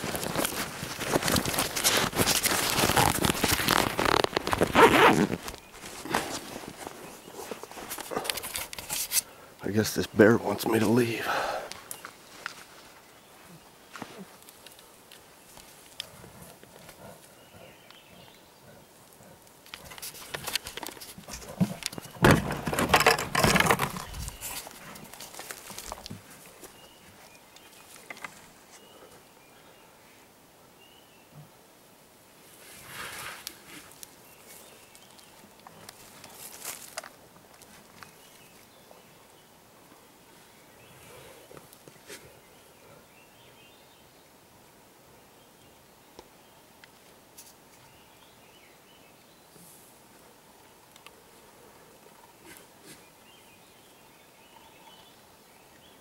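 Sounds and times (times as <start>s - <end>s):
twigs snapping: 0.0s - 6.9s, 35.0s - 38.2s
twigs crackling: 0.0s - 9.3s, 10.0s - 18.4s, 19.0s - 28.8s, 32.6s - 38.8s
faint steady hiss: 0.0s - 56.0s.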